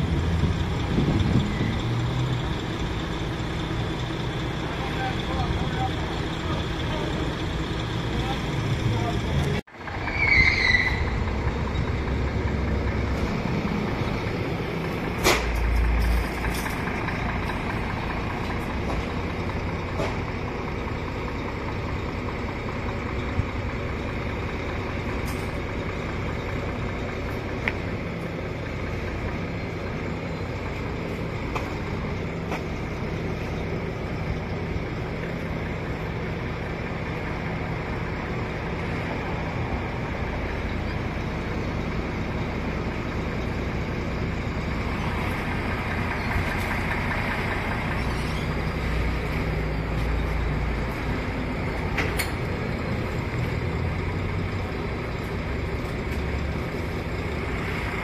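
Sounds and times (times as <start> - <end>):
diesel crane engine running: 0.0 - 58.0
high squeal: 9.8 - 11.9, 47.9 - 50.0.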